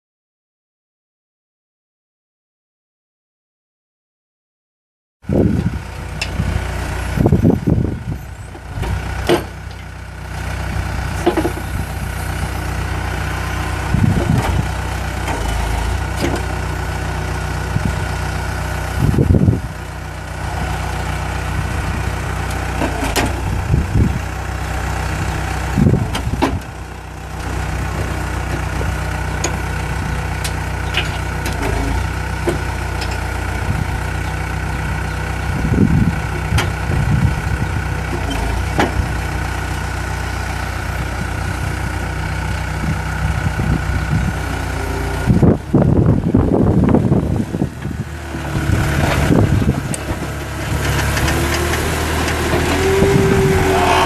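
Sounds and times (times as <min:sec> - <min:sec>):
diesel engine idling: 0:05.3 - 0:54.0
hydraulic engine surges: 0:48.4 - 0:54.0.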